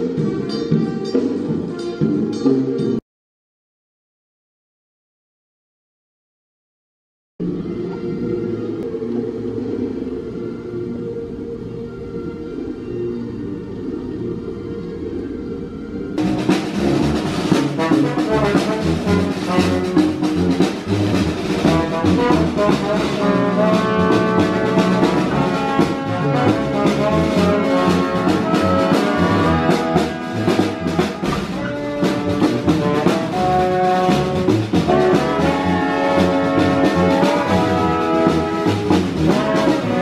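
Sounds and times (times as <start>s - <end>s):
brass band playing: 16.2s - 40.0s
steady drum beat: 16.2s - 40.0s.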